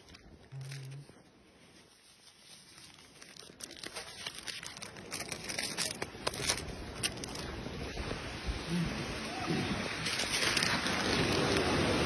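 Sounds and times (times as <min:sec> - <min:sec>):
plastic wrapper crinkling and tearing: 0:00.0 - 0:01.2, 0:01.8 - 0:07.6, 0:10.0 - 0:12.0.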